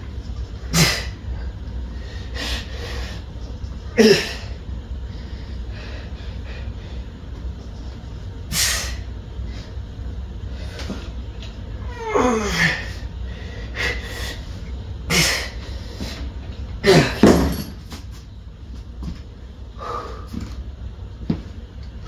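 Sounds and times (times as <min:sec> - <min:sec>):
man breathing hard: 0:00.7 - 0:03.4, 0:04.0 - 0:07.2, 0:12.5 - 0:14.5, 0:19.7 - 0:20.5
man groaning with strain: 0:11.9 - 0:13.0, 0:16.8 - 0:17.4.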